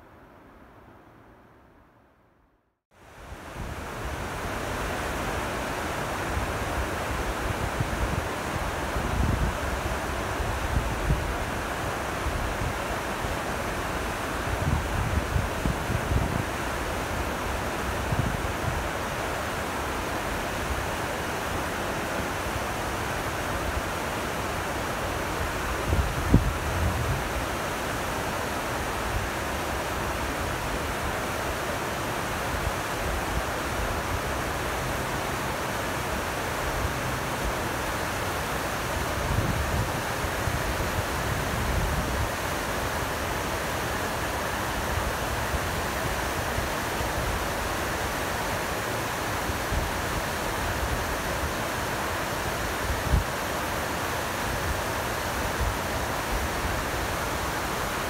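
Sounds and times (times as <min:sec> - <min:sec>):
stream rushing over rocks: 0:03.0 - 0:58.0
wind rumble on microphone: 0:06.2 - 0:19.1, 0:25.3 - 0:27.6, 0:38.5 - 0:43.2.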